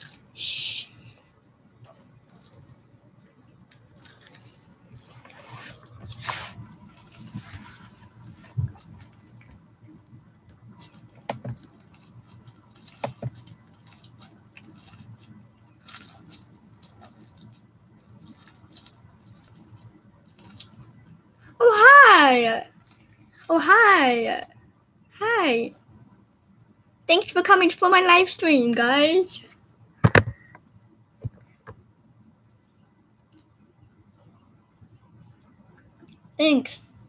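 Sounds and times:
rustling close to microphone: 0:03.8 - 0:10.0.

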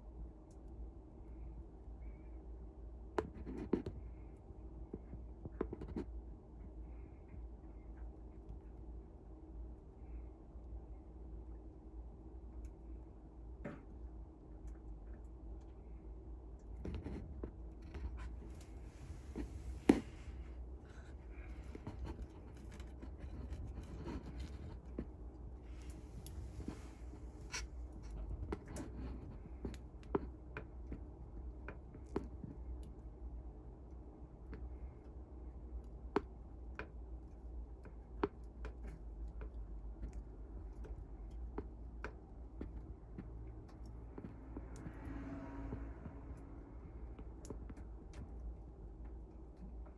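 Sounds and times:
low steady hum: 0:00.0 - 0:49.9
light scratching: 0:16.8 - 0:29.8.

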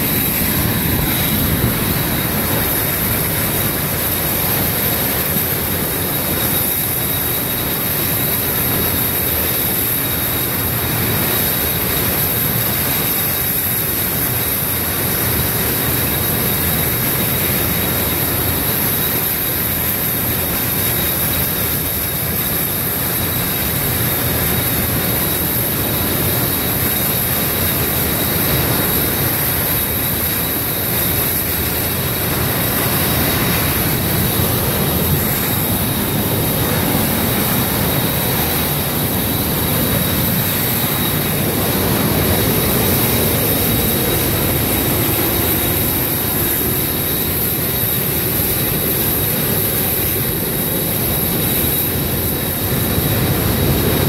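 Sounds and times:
steam jet rushing: 0:00.0 - 0:54.0.

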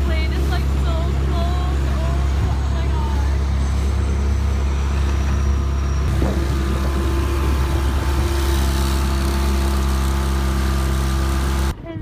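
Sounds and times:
speedboat motor droning: 0:00.0 - 0:11.8
water rushing past hull: 0:06.1 - 0:11.7.

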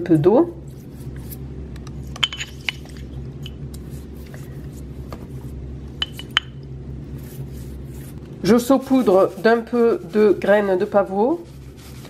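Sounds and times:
steady low hum: 0:00.0 - 0:12.0
brush dabbing wet pastry: 0:00.6 - 0:01.4, 0:03.7 - 0:06.2, 0:06.9 - 0:12.0.

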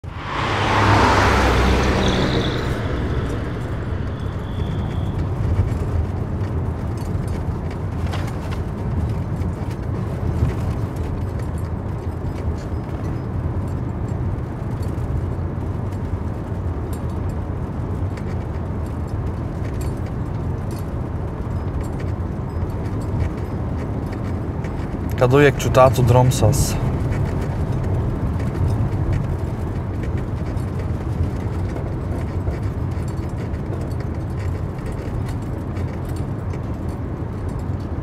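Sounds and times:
faint high thin tone: 0:00.0 - 0:06.2
car engine and road noise: 0:00.0 - 0:38.0.

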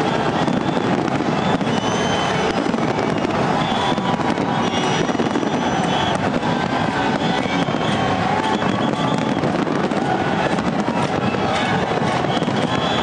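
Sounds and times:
crowd cheering: 0:00.0 - 0:13.0
fireworks crackling and popping: 0:00.0 - 0:13.0
short whistles: 0:00.4 - 0:06.2, 0:07.2 - 0:09.5, 0:11.6 - 0:13.0.

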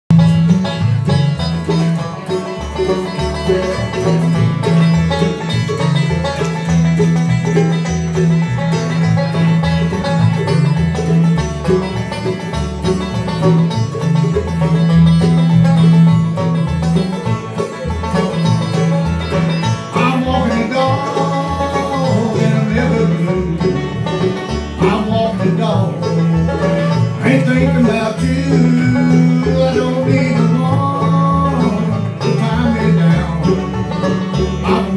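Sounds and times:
upright bass line: 0:00.0 - 0:34.9
bluegrass band playing: 0:00.1 - 0:34.9
man singing: 0:19.9 - 0:24.0, 0:24.8 - 0:33.7, 0:34.6 - 0:34.9.

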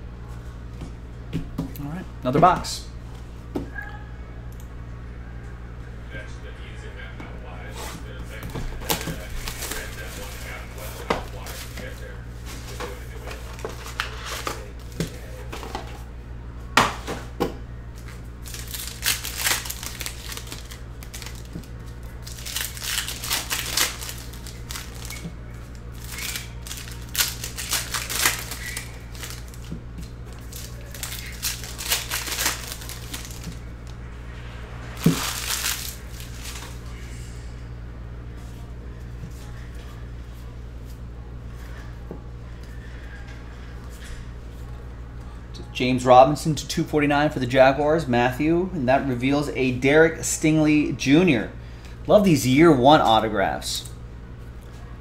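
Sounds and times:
steady low hum: 0:00.0 - 0:55.0
plastic wrapping crinkling and tearing: 0:08.8 - 0:11.9, 0:18.4 - 0:34.0, 0:35.0 - 0:36.9
cards being shuffled: 0:18.0 - 0:34.0, 0:35.0 - 0:36.9.

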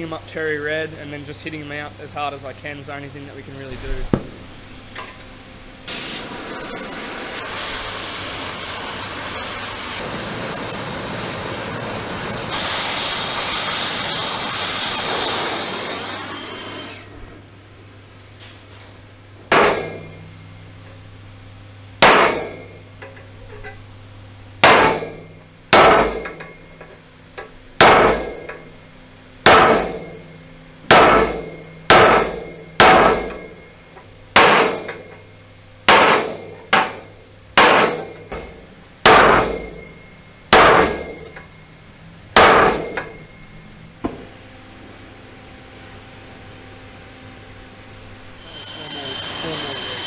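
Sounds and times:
hammer striking steel punch: 0:19.5 - 0:20.2, 0:22.0 - 0:22.8, 0:24.6 - 0:26.6, 0:27.8 - 0:28.5, 0:29.4 - 0:30.2, 0:30.9 - 0:33.6, 0:34.3 - 0:35.0, 0:35.9 - 0:41.4, 0:42.4 - 0:43.2.

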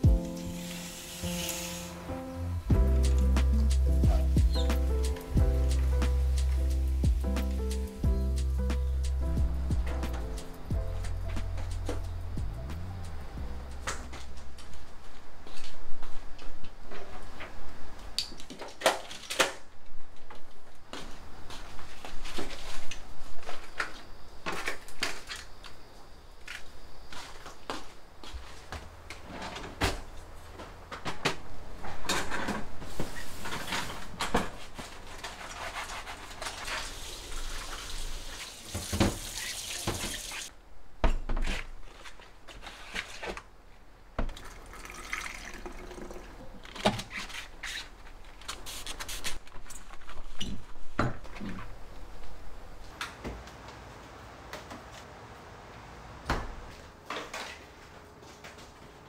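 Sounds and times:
tap water splashing in sink: 0:38.6 - 0:40.4.

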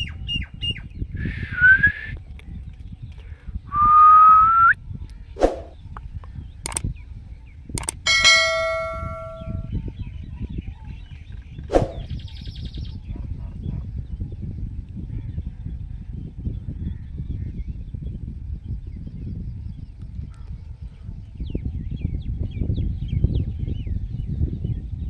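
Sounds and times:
sharp clicks: 0:06.6 - 0:06.9, 0:07.8 - 0:09.5
bell-like chime: 0:08.1 - 0:09.7.

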